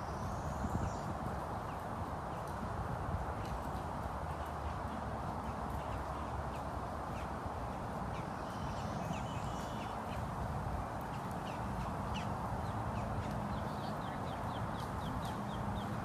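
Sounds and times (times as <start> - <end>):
outdoor background noise: 0.0 - 16.0
birds chirping: 8.0 - 16.0.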